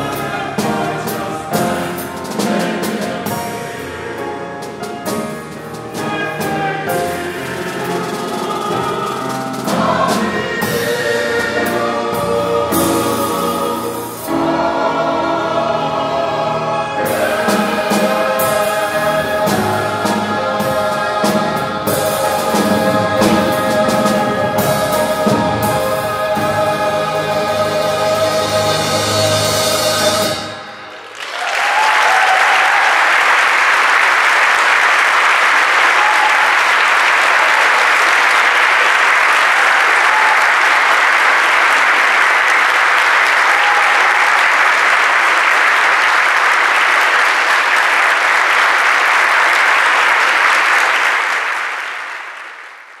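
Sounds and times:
choir with piano and drums: 0.0s - 51.6s
audience applause: 30.9s - 53.0s.

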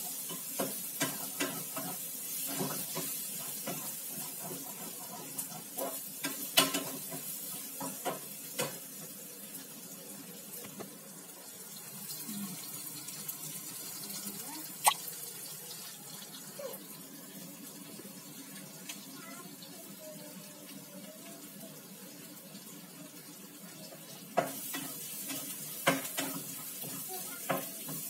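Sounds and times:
food sizzling: 0.0s - 28.0s
spatula knocking on pan: 27.4s - 28.0s.

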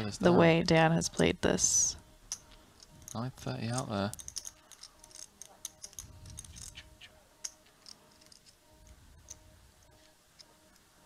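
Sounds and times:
poker chips clicking: 2.3s - 10.9s.

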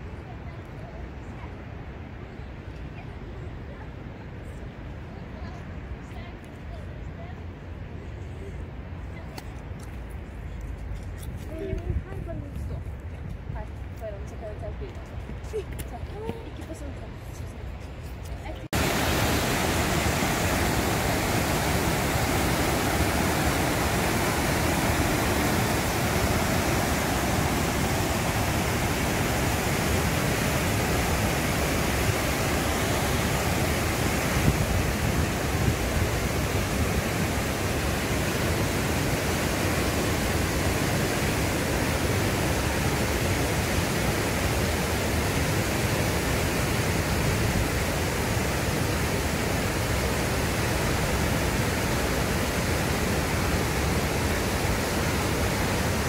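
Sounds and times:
river rapids and waterfall roaring: 17.9s - 56.0s.

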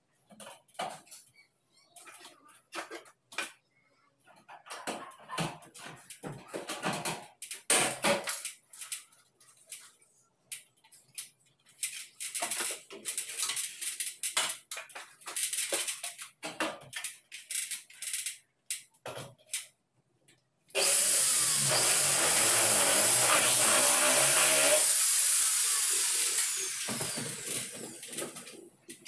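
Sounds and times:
metallic clicks and scrapes of tools: 8.3s - 19.7s.

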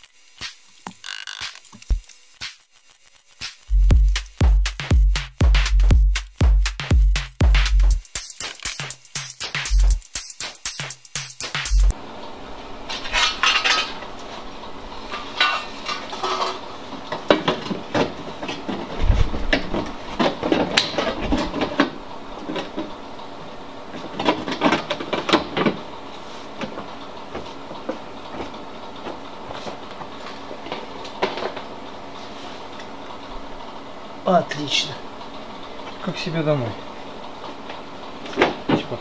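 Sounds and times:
metal panel clanks and scrapes: 15.1s - 16.6s.

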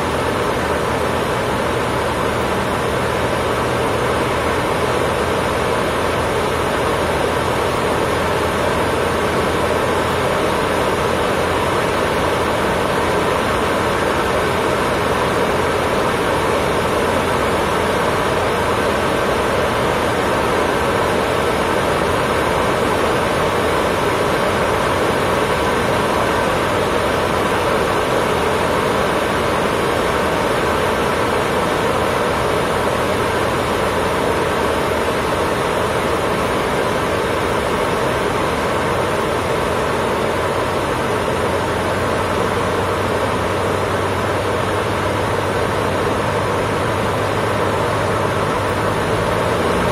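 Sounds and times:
propeller plane engine drone: 0.0s - 49.9s.

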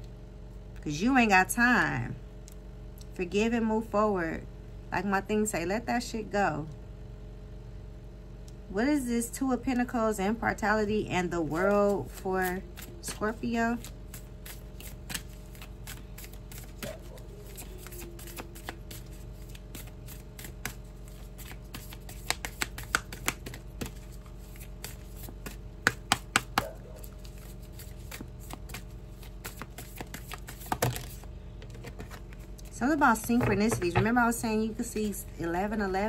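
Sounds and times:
cards flicking and tapping: 12.1s - 32.6s.

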